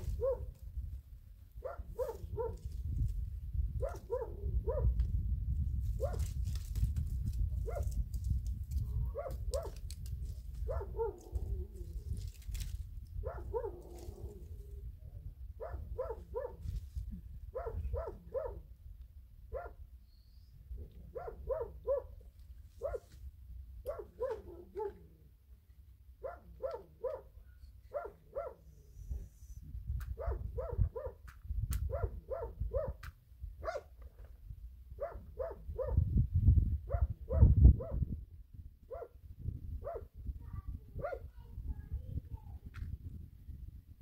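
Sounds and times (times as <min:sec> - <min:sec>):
dog barking: 0:00.1 - 0:00.5, 0:01.6 - 0:02.6, 0:03.8 - 0:05.0, 0:06.0 - 0:06.2, 0:07.6 - 0:07.9, 0:09.1 - 0:09.8, 0:10.7 - 0:11.2, 0:13.2 - 0:13.8, 0:15.6 - 0:16.6, 0:17.5 - 0:18.6, 0:19.5 - 0:19.8, 0:21.1 - 0:22.2, 0:22.8 - 0:23.1, 0:23.8 - 0:25.1, 0:26.2 - 0:28.7, 0:30.2 - 0:31.2, 0:31.9 - 0:33.0, 0:33.6 - 0:33.9, 0:35.0 - 0:36.0, 0:36.9 - 0:38.1, 0:38.9 - 0:39.2, 0:39.8 - 0:40.1, 0:41.0 - 0:41.3.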